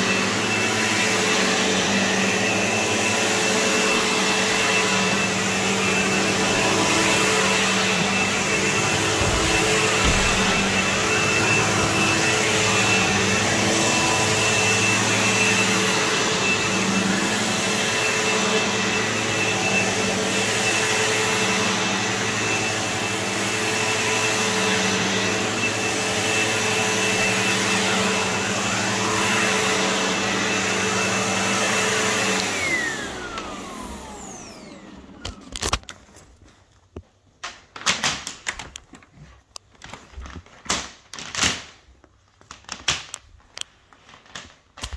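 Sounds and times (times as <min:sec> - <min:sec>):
upright vacuum running on carpet: 0:00.0 - 0:35.9.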